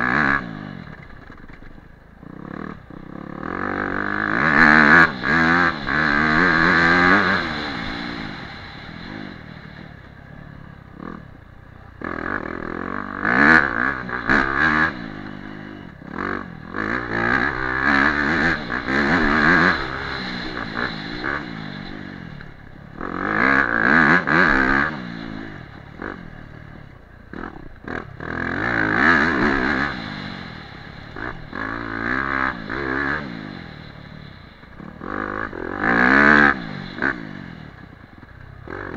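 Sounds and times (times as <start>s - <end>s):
dirt bike engine revving: 0.0s - 38.9s.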